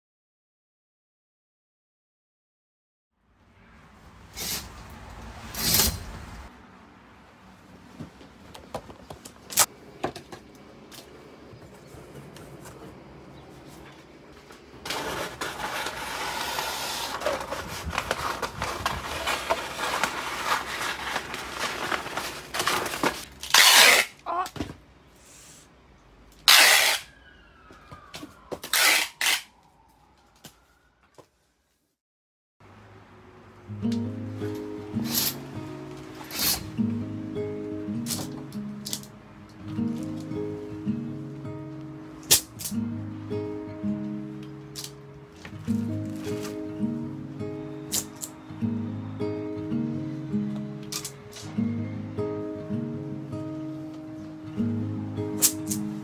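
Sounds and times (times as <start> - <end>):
paper rustling and scraping: 11.6 - 24.2, 45.7 - 46.7
paper ripping: 14.8 - 24.2, 26.5 - 27.1, 28.7 - 29.5.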